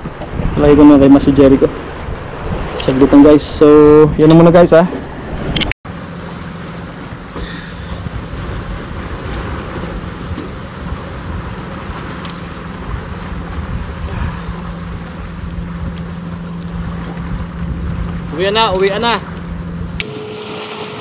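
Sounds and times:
engine humming: 5.9s - 21.0s
wind on microphone: 7.0s - 21.0s
rushing noise: 20.0s - 21.0s.

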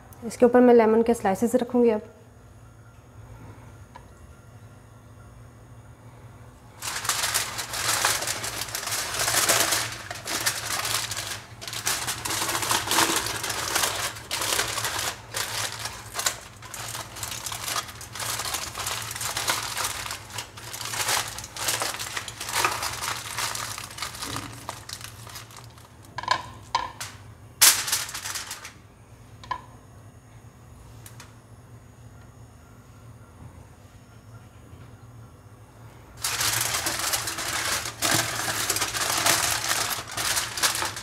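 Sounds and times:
aluminium foil crinkling: 6.7s - 28.8s, 36.2s - 41.0s.

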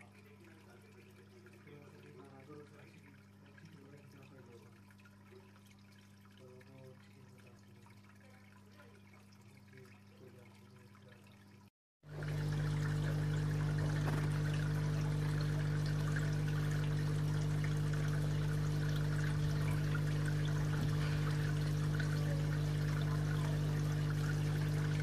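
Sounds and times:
pond pump humming: 0.0s - 25.0s
water trickling and dripping: 0.0s - 25.0s.

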